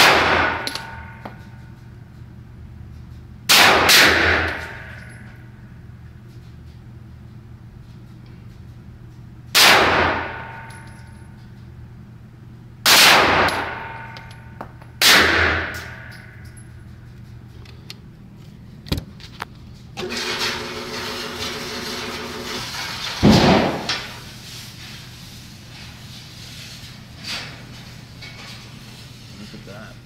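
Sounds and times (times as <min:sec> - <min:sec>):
pistol shots echoing: 0:03.5 - 0:04.8, 0:09.6 - 0:10.6, 0:12.9 - 0:14.1, 0:15.0 - 0:16.0
loud bang: 0:23.0 - 0:24.2.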